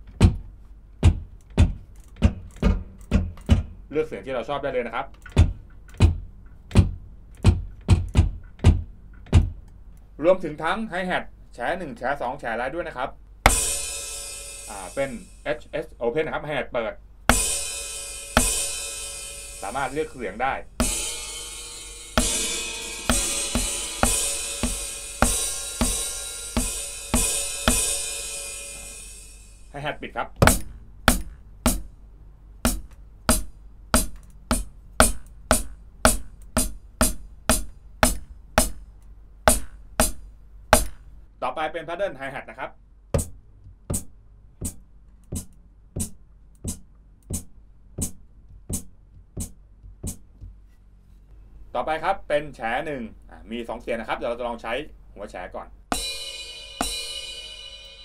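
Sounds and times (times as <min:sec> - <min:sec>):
dull pedal thud: 0:01.0 - 0:03.8, 0:05.3 - 0:09.6, 0:30.4 - 0:31.8
electronic open hi-hat hits: 0:13.5 - 0:15.8, 0:17.3 - 0:31.9, 0:39.5 - 0:41.0, 0:55.9 - 0:58.0.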